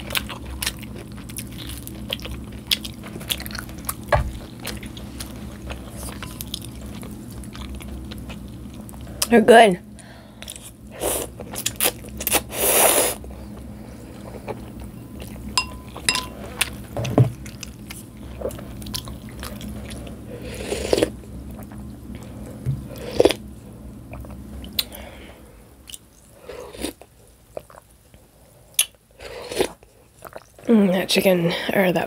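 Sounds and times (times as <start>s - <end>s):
chewing: 0.0s - 9.3s, 17.4s - 23.4s, 25.8s - 30.7s
slurping noodles: 12.3s - 13.2s.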